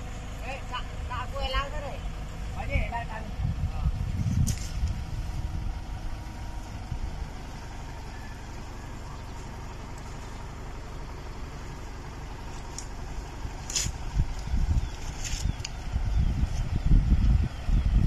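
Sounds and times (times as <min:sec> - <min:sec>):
tractor engine running: 0:00.0 - 0:18.0.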